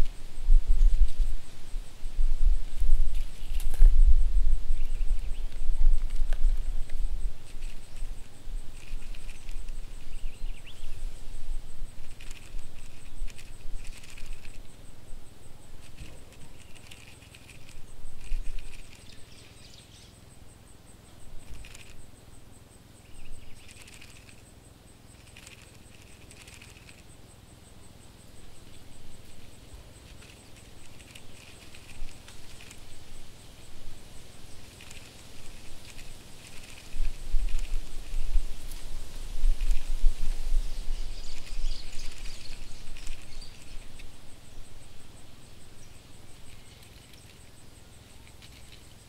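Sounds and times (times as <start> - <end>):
faint high whine: 0.0 - 49.0
cockroach scuttling: 4.8 - 10.9, 12.0 - 14.7, 15.8 - 19.2, 21.4 - 22.0, 23.1 - 24.4, 25.1 - 27.0, 28.6 - 33.0, 34.5 - 38.3, 40.9 - 44.1.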